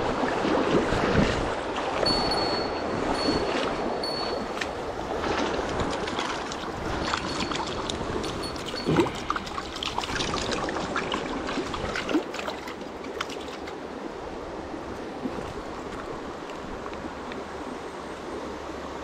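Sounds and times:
stream rushing: 0.0 - 19.0
fish thrashing and splashing: 4.5 - 13.9.

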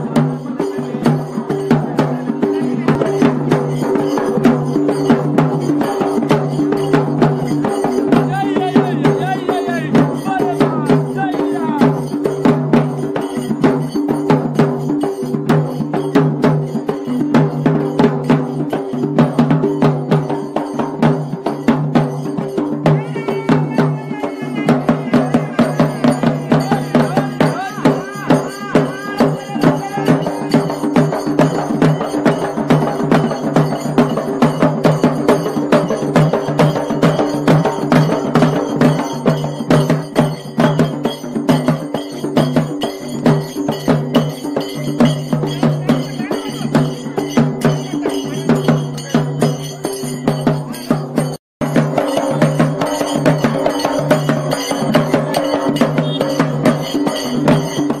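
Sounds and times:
rhythmic barrel drumming: 0.0 - 58.0.

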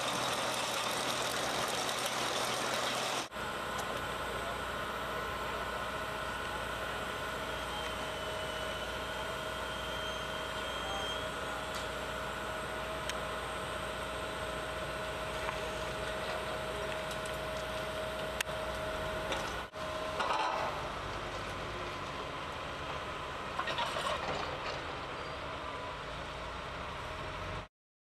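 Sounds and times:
thin steady whine: 0.0 - 23.8
heavy machinery engine running: 0.0 - 27.7.

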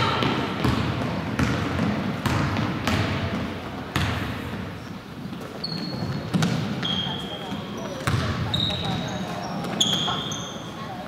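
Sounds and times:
gym background noise: 0.0 - 11.0
basketball dribbling on hardwood: 0.2 - 4.2, 8.0 - 8.3.

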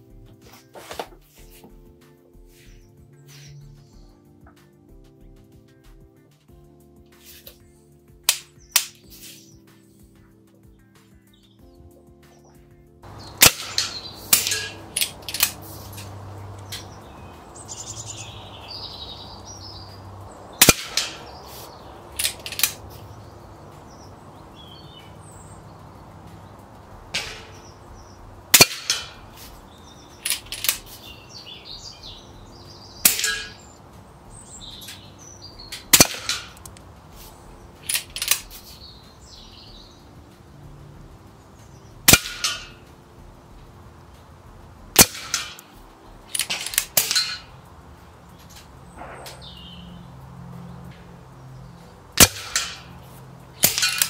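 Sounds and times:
birds chirping: 0.0 - 54.0
air rifle shots: 8.2 - 9.5, 13.0 - 33.8, 34.6 - 38.9, 42.0 - 43.0, 44.9 - 47.6, 48.5 - 49.6, 52.2 - 54.0.

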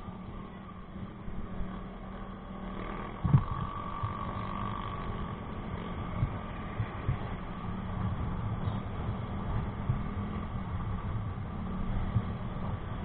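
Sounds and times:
motorcycle engine running: 0.0 - 13.0
wind rumble on microphone: 2.9 - 13.0.

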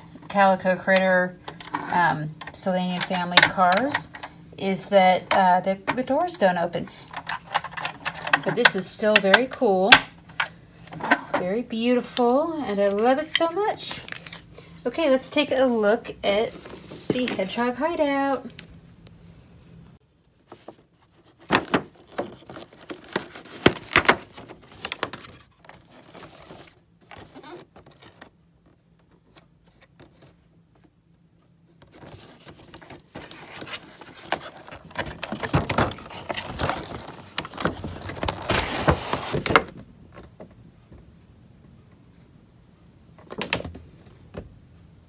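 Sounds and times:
cardboard rustling and scraping: 16.4 - 17.7, 20.4 - 30.9, 31.7 - 39.8.

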